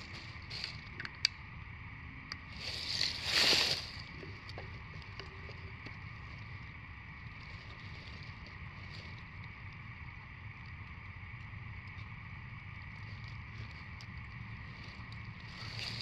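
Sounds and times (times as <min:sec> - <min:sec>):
dry leaves crackling and rustling: 0:00.0 - 0:00.9, 0:02.5 - 0:06.6, 0:07.2 - 0:09.8, 0:12.9 - 0:16.0.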